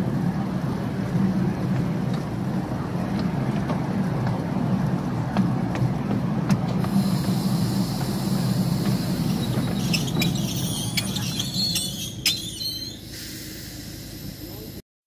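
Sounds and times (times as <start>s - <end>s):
train wheels rumbling on rail: 0.0s - 14.8s
metallic wheel squeals: 7.6s - 14.7s.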